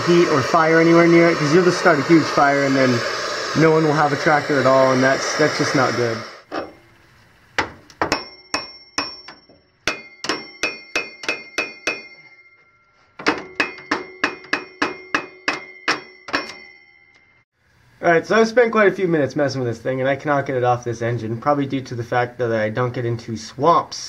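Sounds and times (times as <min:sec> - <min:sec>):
hammer tapping metal pulley: 0:08.1 - 0:12.4, 0:13.2 - 0:17.2.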